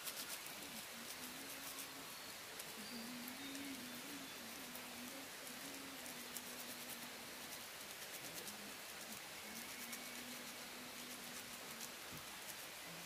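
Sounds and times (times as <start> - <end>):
outdoor hiss: 0.0 - 13.0
faint wavering low tone: 0.7 - 7.6.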